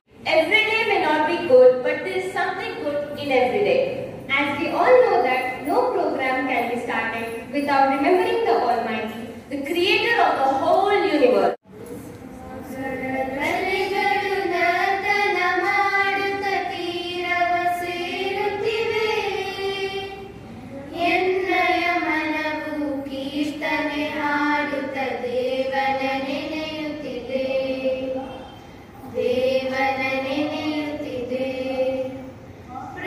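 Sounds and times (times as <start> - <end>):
girls singing prayer song: 11.8 - 33.0.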